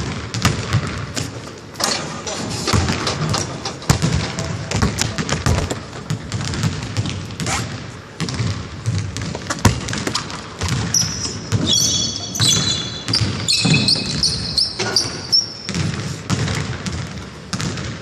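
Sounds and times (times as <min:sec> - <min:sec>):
basketball bouncing on gym floor: 0:00.0 - 0:01.4, 0:02.7 - 0:18.0
sneakers squeaking on floor: 0:04.0 - 0:17.9.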